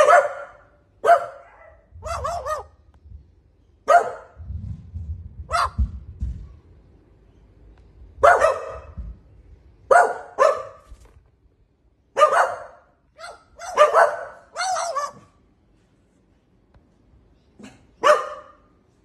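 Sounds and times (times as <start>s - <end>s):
dog barking: 0.0s - 2.8s, 3.8s - 4.4s, 5.5s - 5.9s, 8.2s - 9.1s, 9.9s - 10.9s, 12.2s - 15.4s, 17.6s - 18.7s.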